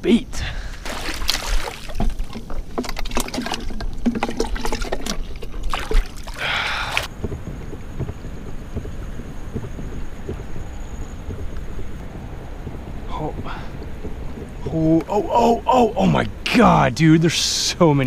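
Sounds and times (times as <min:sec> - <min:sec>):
water splashing and dribbling: 0:00.5 - 0:18.0
small knocks: 0:07.1 - 0:15.2.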